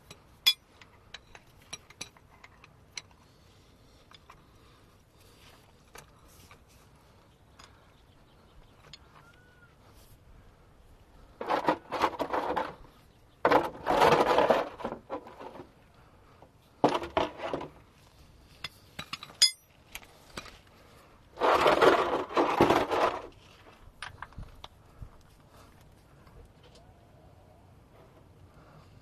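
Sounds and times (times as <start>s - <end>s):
metal clink with ring: 19.2s - 19.7s.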